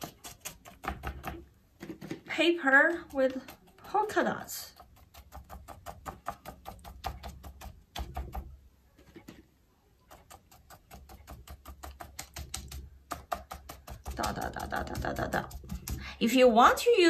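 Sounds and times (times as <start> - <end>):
paintbrush tapping on paper: 4.8 - 9.4, 10.1 - 16.1.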